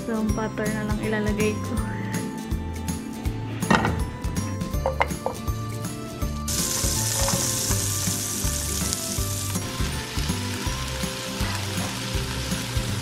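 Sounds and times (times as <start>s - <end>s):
garlic sizzling in butter: 6.5s - 13.0s.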